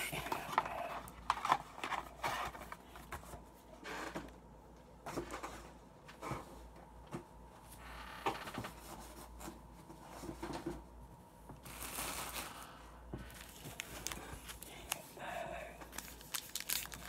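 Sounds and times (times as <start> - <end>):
card packs rustling: 0.0 - 3.6, 11.6 - 17.0.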